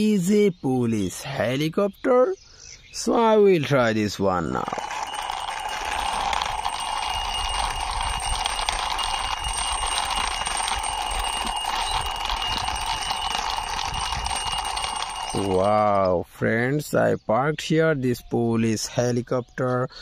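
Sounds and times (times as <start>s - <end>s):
toy rattling buzz on concrete: 3.7s - 15.9s.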